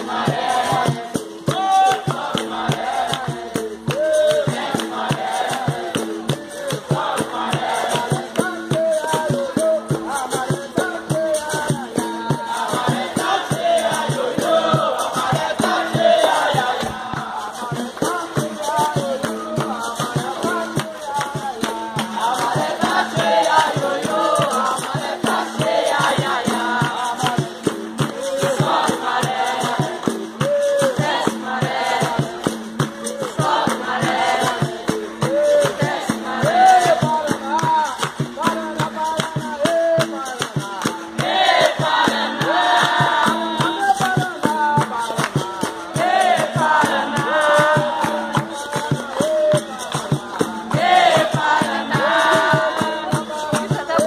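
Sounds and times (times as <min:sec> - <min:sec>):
group singing a chant: 0:00.0 - 0:54.0
hand-clapping: 0:00.0 - 0:54.0
percussion rhythm: 0:00.0 - 0:54.0
shaker rattle: 0:00.0 - 0:54.0.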